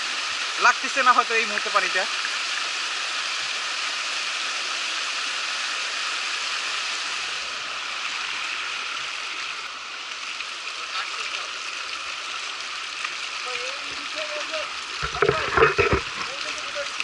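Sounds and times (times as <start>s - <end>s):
stream rushing over rocks: 0.0s - 17.0s.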